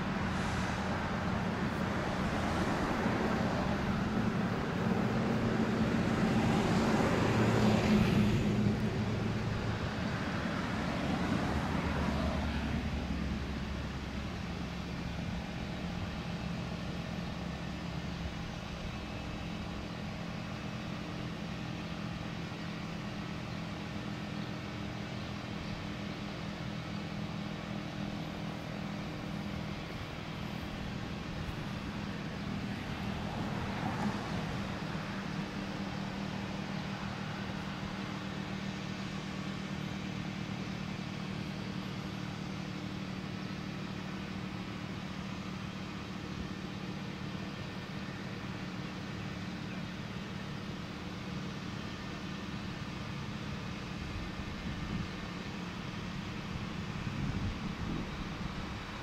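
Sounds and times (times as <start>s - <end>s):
siren low drone winding down: 0.0s - 23.2s.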